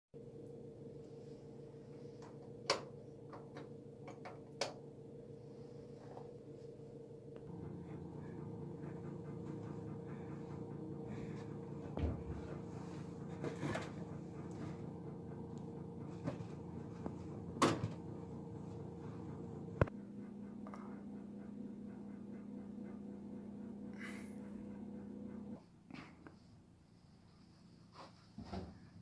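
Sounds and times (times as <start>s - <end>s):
kitchen appliance humming: 7.4s - 25.6s.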